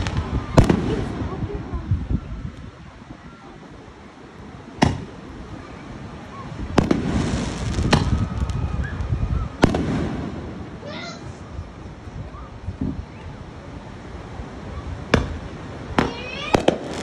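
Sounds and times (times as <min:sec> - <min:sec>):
fireworks bangs: 0:00.0 - 0:01.9, 0:04.7 - 0:05.2, 0:06.5 - 0:11.3, 0:15.1 - 0:17.0
fireworks crackling: 0:00.0 - 0:13.5, 0:14.4 - 0:17.0.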